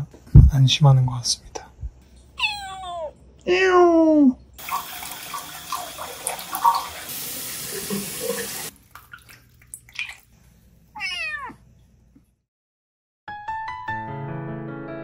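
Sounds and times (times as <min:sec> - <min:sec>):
kitten meowing: 0:02.4 - 0:03.1, 0:11.0 - 0:11.6
tap water running into sink: 0:04.6 - 0:10.2.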